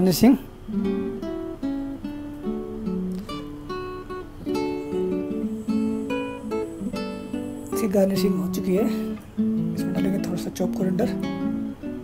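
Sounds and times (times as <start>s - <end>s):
plucked guitar melody: 0.0s - 12.0s.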